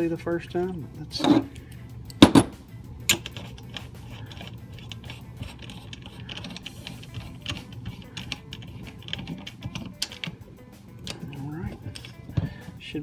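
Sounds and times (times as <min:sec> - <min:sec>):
plastic parts clicking and ticking: 0:03.1 - 0:10.4.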